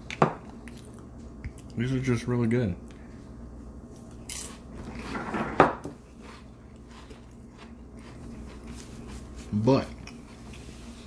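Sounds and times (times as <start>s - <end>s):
person chewing: 0.4s - 1.8s, 6.0s - 10.7s.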